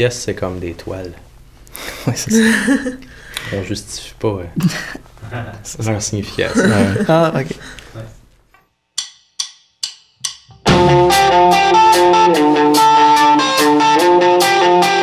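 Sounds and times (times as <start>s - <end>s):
drum kit with cymbals: 9.0s - 15.0s
electric guitar chords: 10.5s - 15.0s
rock band playing: 10.5s - 15.0s.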